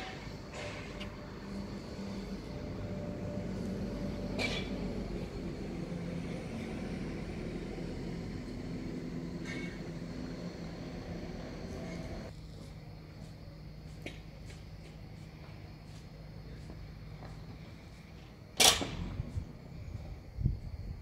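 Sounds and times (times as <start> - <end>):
machinery humming: 0.0 - 13.3.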